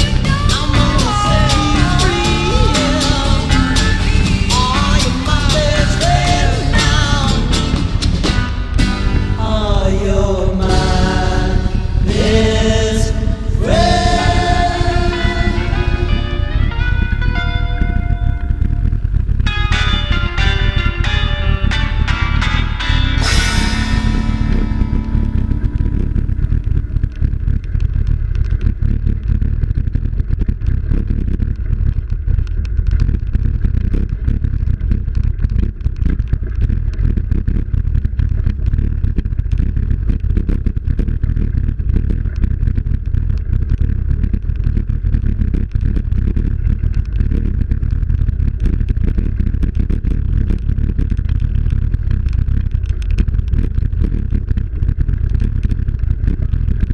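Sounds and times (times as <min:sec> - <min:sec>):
clatter and rattle: 0:20.8 - 0:56.9.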